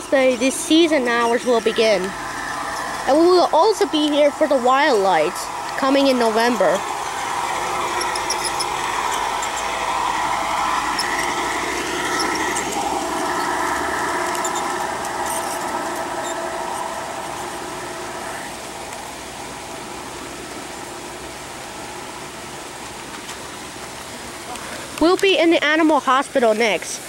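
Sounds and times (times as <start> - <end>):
model train whirring and squealing: 0.0 - 26.8.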